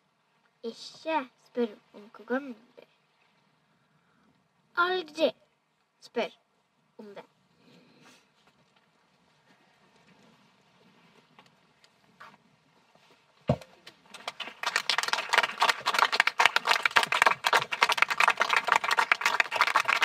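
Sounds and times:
thump: 13.5s - 13.7s
audience applause: 14.2s - 20.0s.

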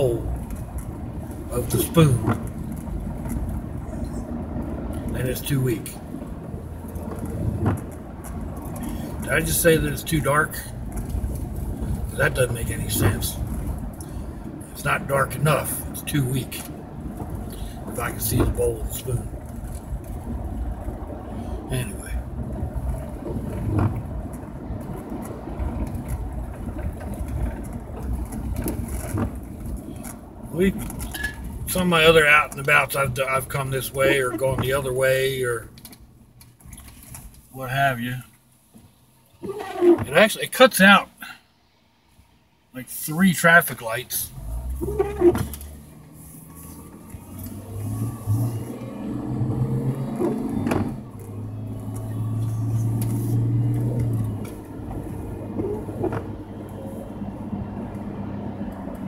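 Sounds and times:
car engine rumble: 0.0s - 59.0s
tyres on wet road: 0.0s - 59.0s
windshield wiper sweeping: 6.1s - 8.8s, 10.8s - 14.0s, 16.4s - 21.2s, 22.4s - 30.0s, 32.7s - 35.0s, 39.4s - 40.2s, 44.4s - 59.0s.

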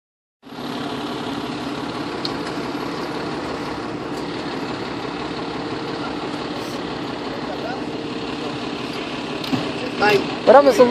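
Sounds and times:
diesel engine idling: 0.4s - 10.9s.

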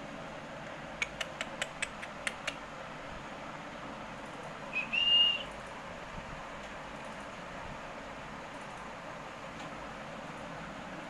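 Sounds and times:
background hiss: 0.0s - 11.0s
sharp clicks: 1.0s - 2.6s
parrot whistling: 4.7s - 5.5s.

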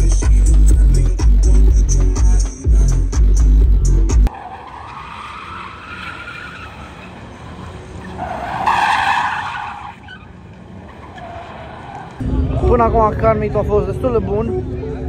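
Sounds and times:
car tyres squealing: 4.2s - 12.2s.

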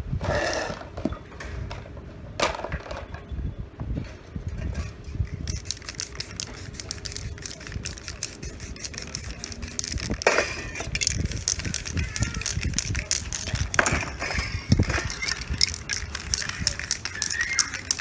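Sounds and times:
spray paint can hissing: 5.3s - 18.0s.

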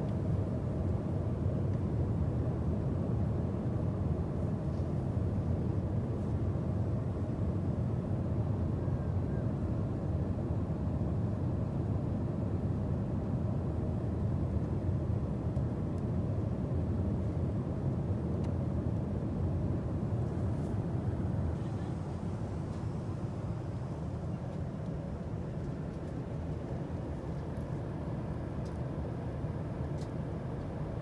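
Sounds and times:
airliner cabin noise: 15.7s - 31.0s.

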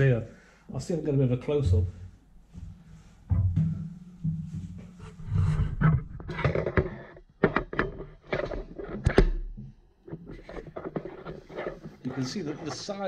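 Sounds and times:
microphone handling rustling: 2.4s - 9.3s, 10.1s - 13.0s
sharp knocks: 3.3s - 5.2s.

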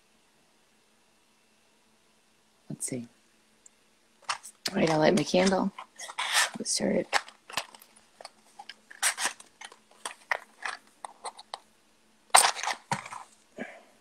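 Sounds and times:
matchbox clicks and rustles: 4.2s - 11.6s, 12.3s - 13.4s
match striking and flaring: 12.3s - 13.3s.

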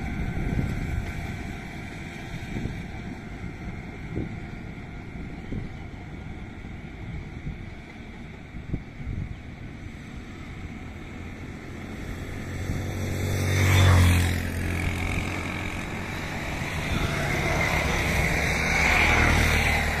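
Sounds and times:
passing vehicle engine: 9.8s - 20.0s.

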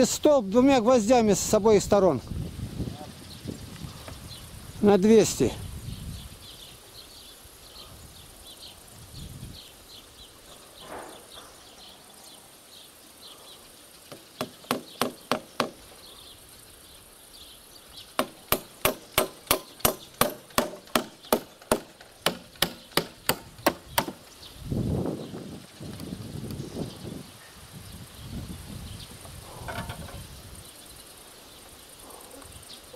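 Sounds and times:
hammer driving nails into wood: 14.1s - 15.8s, 18.2s - 24.2s.

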